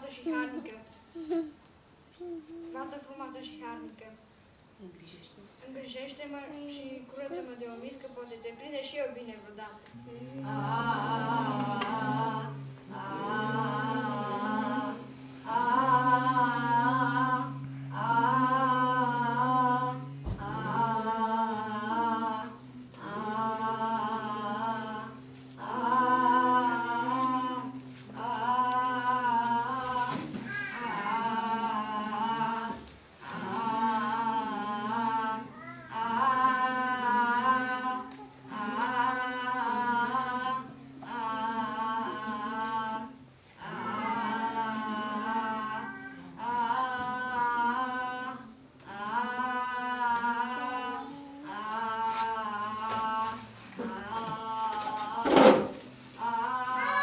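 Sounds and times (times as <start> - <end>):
person singing with vibrato: 9.9 - 57.0
low held drone note: 10.0 - 30.1.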